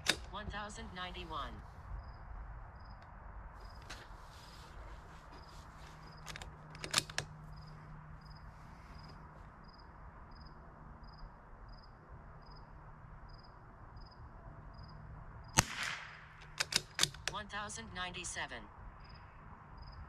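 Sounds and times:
sharp clicks: 0.0s - 0.4s, 6.1s - 7.4s, 15.6s - 17.4s
insect chirping: 2.0s - 3.0s, 3.6s - 3.9s, 5.3s - 6.3s, 7.3s - 15.6s, 18.9s - 20.0s
rifle shot with ring: 15.6s - 17.2s.

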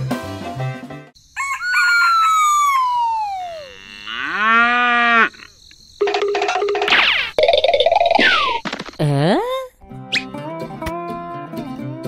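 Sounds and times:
rooster crowing: 1.3s - 5.3s
cow mooing: 3.4s - 5.4s
background music: 9.8s - 12.0s.

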